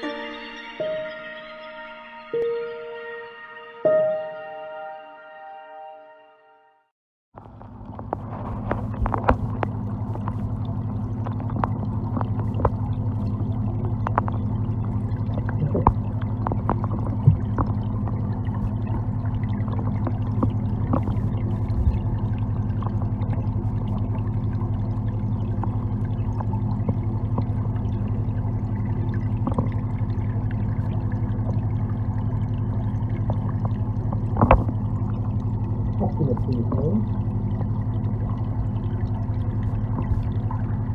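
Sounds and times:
water noise: 0.0s - 4.7s, 7.4s - 40.9s
low underwater hum: 7.4s - 40.9s
faint clicks: 13.8s - 14.5s.

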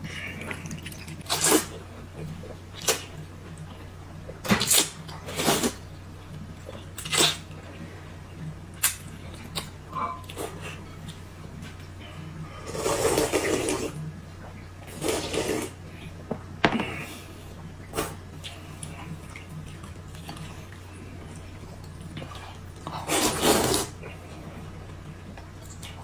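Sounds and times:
person slurping noodles: 12.6s - 14.0s, 14.9s - 15.8s, 23.0s - 24.0s.

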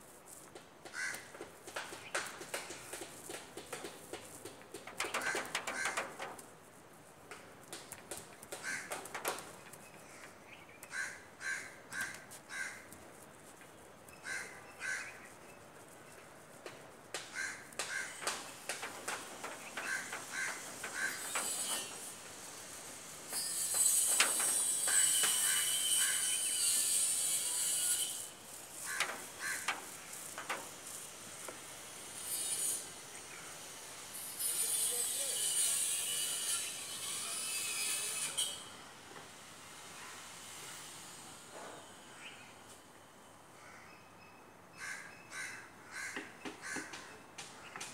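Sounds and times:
crows cawing: 0.9s - 1.5s, 5.0s - 6.2s, 8.5s - 9.1s, 10.0s - 13.0s, 14.2s - 15.3s, 17.2s - 18.5s, 19.4s - 21.4s, 28.8s - 29.9s, 43.6s - 43.9s, 44.8s - 47.1s.

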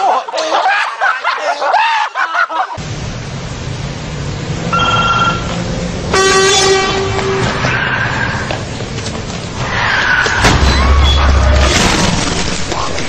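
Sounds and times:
street traffic: 2.1s - 13.0s
high-pitched tone: 4.7s - 5.6s.

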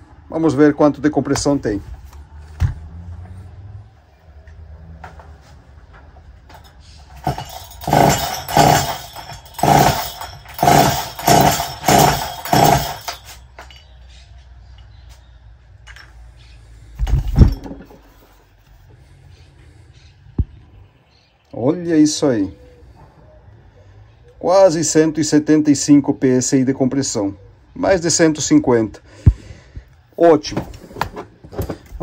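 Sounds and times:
chainsaw cranked on starter cord: 6.6s - 13.9s.

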